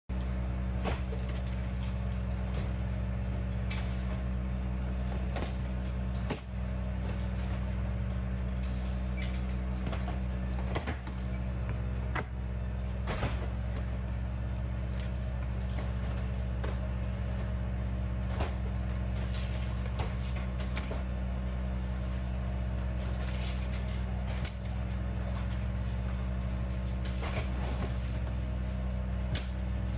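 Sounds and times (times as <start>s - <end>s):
low machine drone: 0.1s - 29.9s.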